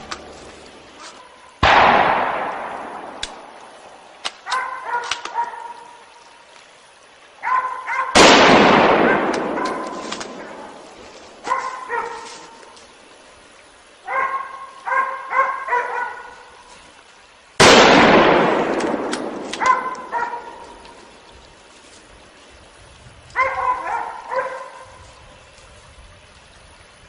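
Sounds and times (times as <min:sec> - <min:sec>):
loud gunshot echoing: 0:01.6 - 0:03.5, 0:08.2 - 0:10.6, 0:17.6 - 0:19.6
dog barking: 0:04.4 - 0:06.0, 0:07.4 - 0:08.2, 0:09.1 - 0:10.8, 0:11.4 - 0:12.6, 0:14.0 - 0:16.5, 0:19.6 - 0:20.8, 0:23.4 - 0:24.9.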